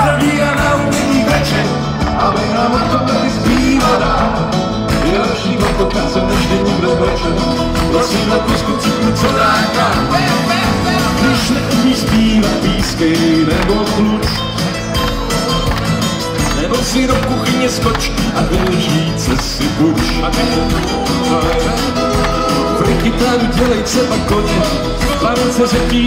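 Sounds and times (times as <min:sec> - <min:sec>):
bass line: 0:00.0 - 0:26.0
drums: 0:00.0 - 0:26.0
live band playing: 0:00.0 - 0:26.0.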